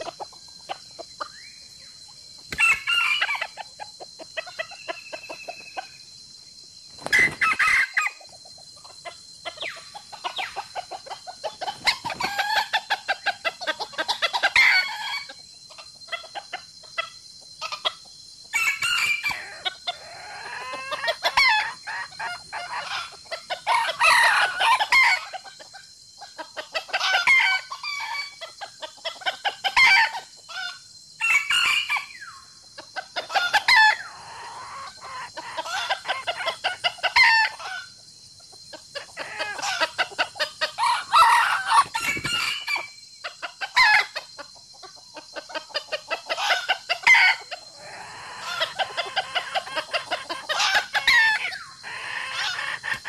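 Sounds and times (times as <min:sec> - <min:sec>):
chickens clucking: 0:00.0 - 0:06.1, 0:06.9 - 0:53.0
rooster crowing: 0:02.5 - 0:03.6, 0:18.5 - 0:25.3, 0:39.0 - 0:43.0, 0:46.4 - 0:49.9, 0:50.5 - 0:53.0.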